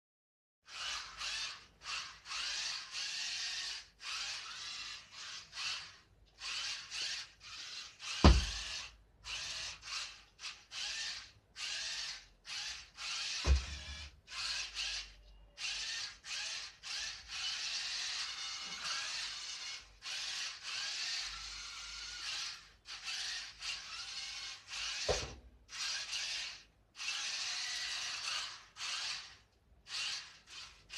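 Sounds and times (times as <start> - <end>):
small motors whirring: 0.7 - 30.9
thumps: 8.2 - 8.8, 13.4 - 14.0.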